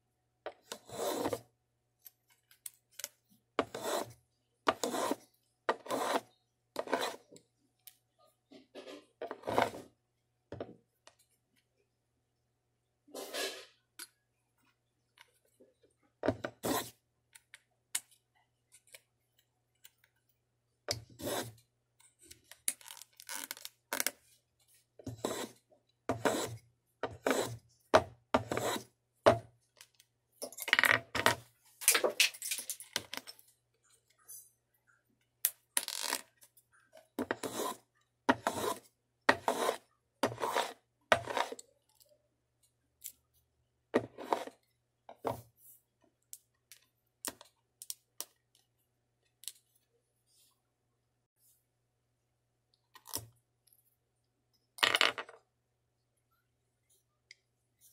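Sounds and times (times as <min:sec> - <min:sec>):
hand tool scraping wood: 0:00.8 - 0:01.4, 0:03.6 - 0:06.2, 0:25.0 - 0:27.6, 0:28.4 - 0:28.9, 0:37.3 - 0:41.6.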